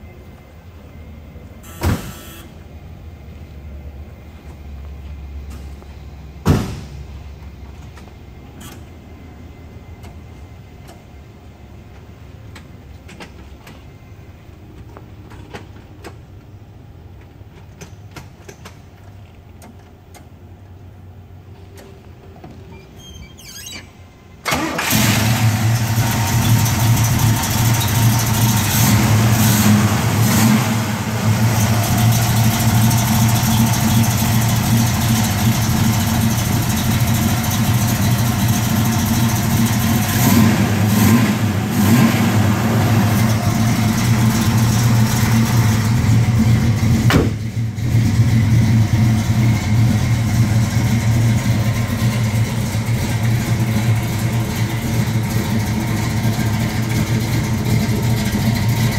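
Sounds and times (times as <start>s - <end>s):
car engine starting and idling: 24.2s - 58.9s.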